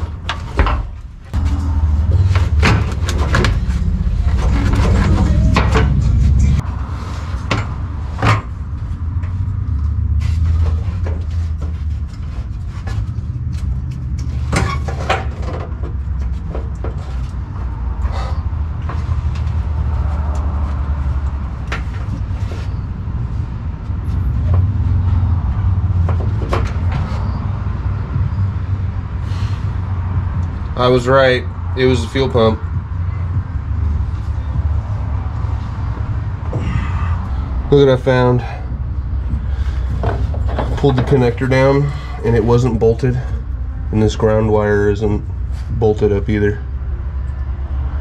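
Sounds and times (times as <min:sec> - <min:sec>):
tools and metal parts clanking: 0:00.0 - 0:06.6, 0:10.4 - 0:17.4, 0:39.8 - 0:43.4
steady low rumble: 0:00.0 - 0:48.0.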